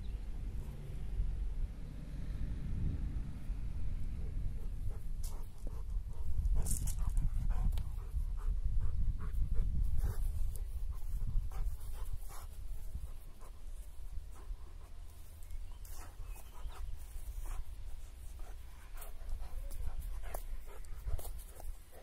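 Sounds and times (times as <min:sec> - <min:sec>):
low rumble: 0:00.0 - 0:20.2
dog panting and snuffling: 0:04.6 - 0:22.0
dog sniffing: 0:04.8 - 0:22.0.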